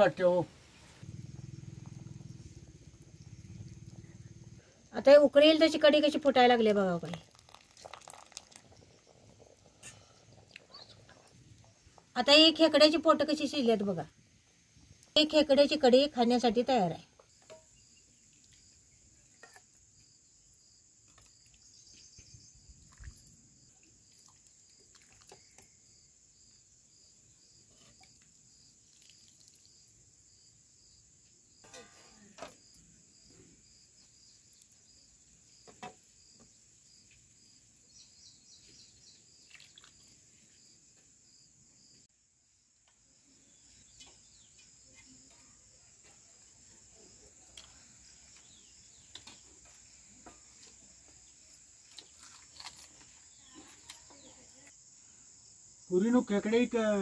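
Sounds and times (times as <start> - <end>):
crickets chirring: 0.0 - 57.0
ladle clinking on steel plates: 31.6 - 32.4.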